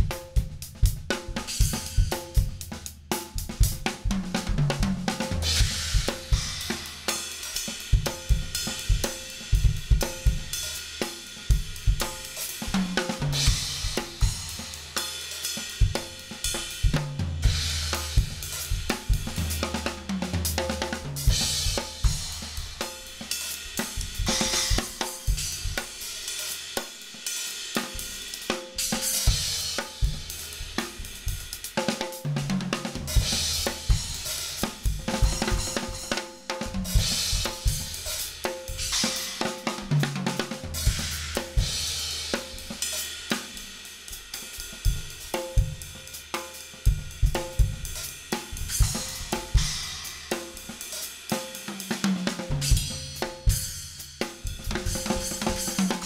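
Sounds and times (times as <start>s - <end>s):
fast drum kit playing: 0.0s - 56.0s.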